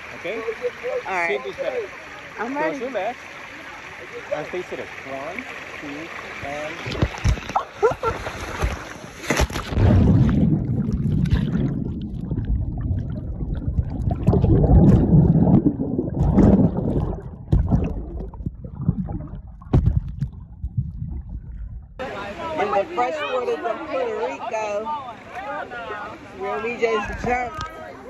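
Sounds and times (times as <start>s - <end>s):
muffled churning water: 0.0s - 22.6s
splash into pool: 6.6s - 18.4s.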